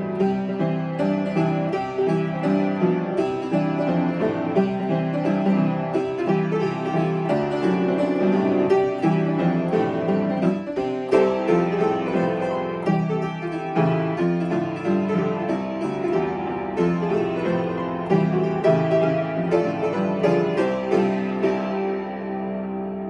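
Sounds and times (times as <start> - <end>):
upright piano playing: 0.0 - 23.0.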